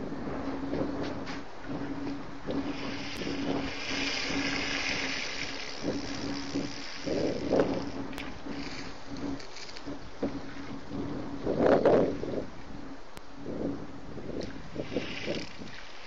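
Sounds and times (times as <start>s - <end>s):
low steady hum: 0.0s - 16.0s
water rushing and splashing: 2.5s - 8.8s.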